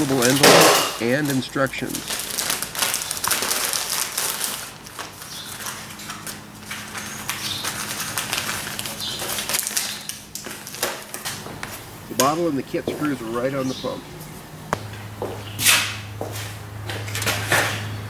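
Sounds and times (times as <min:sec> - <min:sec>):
plastic and paper packaging crinkling: 0:00.0 - 0:11.6.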